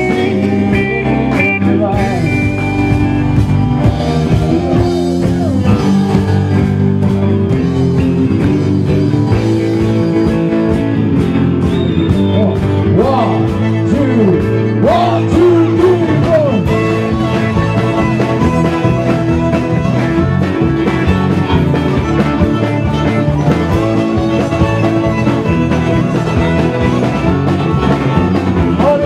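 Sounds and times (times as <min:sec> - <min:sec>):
live country band playing: 0:00.0 - 0:29.0
bowed fiddle sliding between notes: 0:16.6 - 0:28.5.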